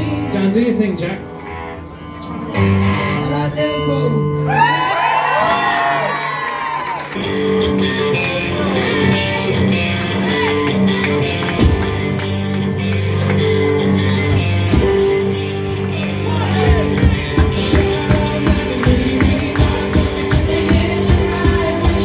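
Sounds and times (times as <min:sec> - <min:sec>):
live rock band: 0:00.0 - 0:22.0
person singing: 0:16.5 - 0:22.0
regular drum beat: 0:16.6 - 0:22.0.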